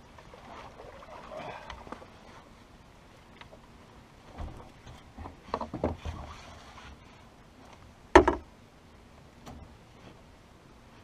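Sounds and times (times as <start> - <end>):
knocks and thumps on boat deck: 8.2 - 8.5.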